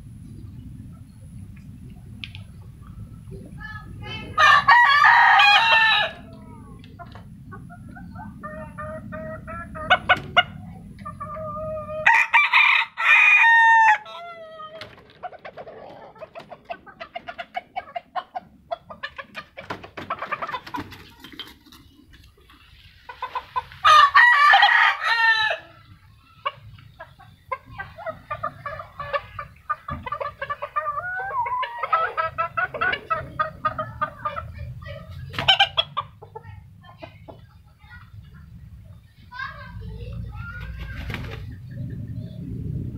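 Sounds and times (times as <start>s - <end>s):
chicken clucking: 4.3s - 12.1s, 13.6s - 42.5s
rooster crowing: 4.4s - 6.4s, 11.9s - 14.8s, 23.8s - 25.8s.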